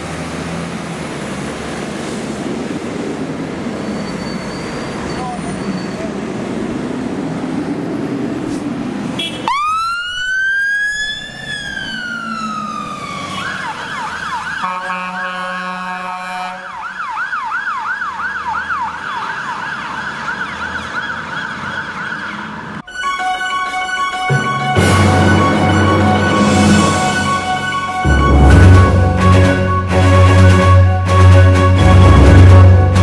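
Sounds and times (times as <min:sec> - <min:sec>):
road traffic noise: 0:00.0 - 0:33.0
emergency siren wailing and yelping: 0:09.4 - 0:32.9.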